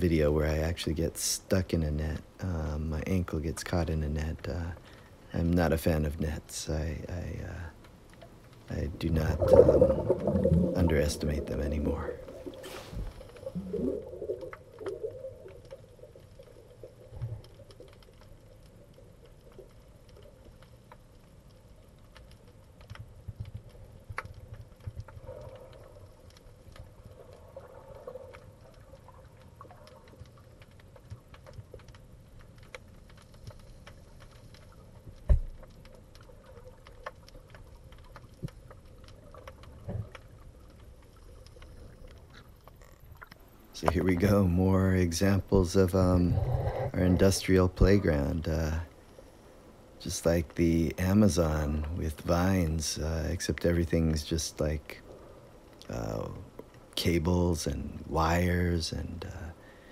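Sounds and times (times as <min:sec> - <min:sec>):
faint clicks: 0:06.2 - 0:59.9
low underwater rumble: 0:07.0 - 0:50.0.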